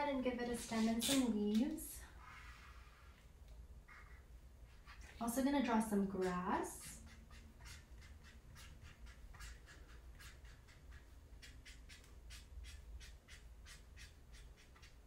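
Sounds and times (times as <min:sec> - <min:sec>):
marker pen stroking on paper: 0:03.9 - 0:15.0.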